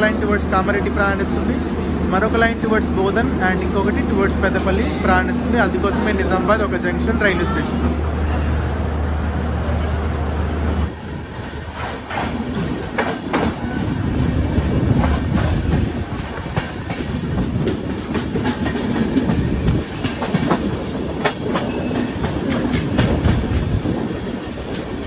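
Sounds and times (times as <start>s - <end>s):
train rumbling on rails: 0.0s - 25.0s
wheels clacking over rail joints: 11.3s - 25.0s.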